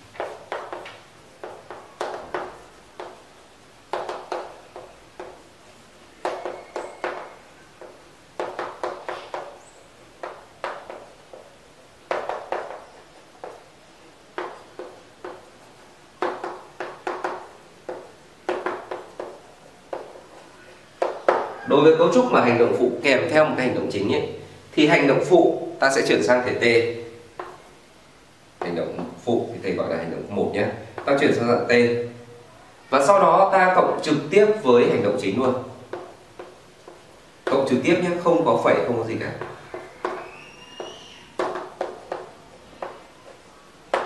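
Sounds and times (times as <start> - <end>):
chalk tapping and scratching: 0.0 - 3.3, 3.9 - 5.5, 6.2 - 21.6, 40.8 - 44.0.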